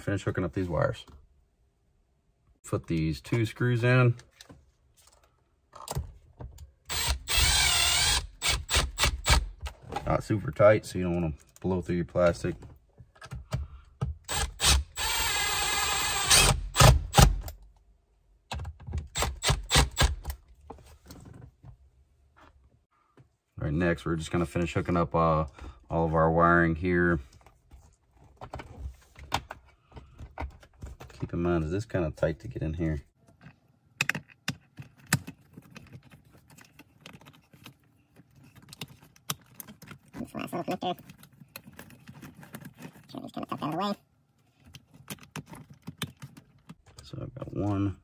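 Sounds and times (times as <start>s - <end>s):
power screwdriver running: 6.9s - 9.4s, 14.3s - 17.2s
clicks and knocks of parts handled: 33.2s - 48.0s.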